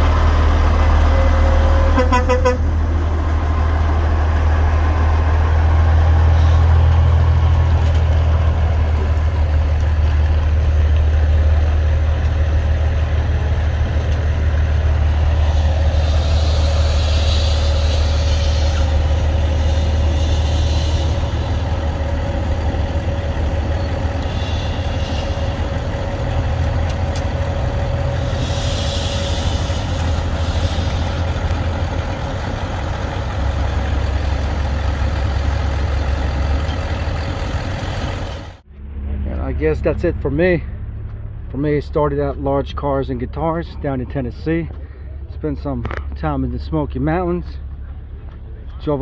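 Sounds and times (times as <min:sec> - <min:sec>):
truck diesel engine rumbling: 0:00.0 - 0:49.0
air hiss: 0:15.4 - 0:21.6, 0:28.2 - 0:31.3.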